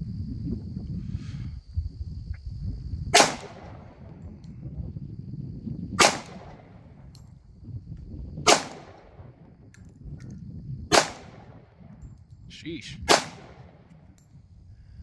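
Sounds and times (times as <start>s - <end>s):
pistol shots: 3.2s - 4.0s, 6.0s - 6.8s, 8.5s - 9.2s, 10.9s - 11.7s, 13.1s - 13.9s.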